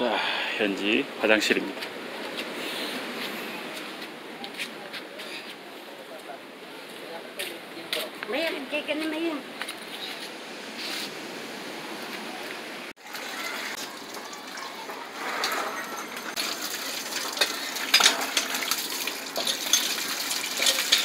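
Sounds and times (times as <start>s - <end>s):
water gushing onto concrete: 13.0s - 21.0s.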